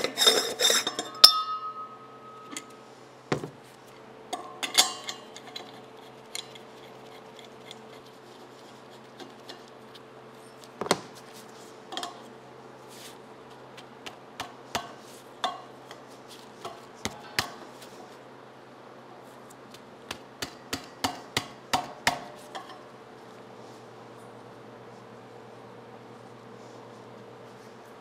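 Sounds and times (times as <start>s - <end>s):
metal regulator clicks and clinks: 0.0s - 2.8s, 4.3s - 5.8s
steady low hum: 0.0s - 28.0s.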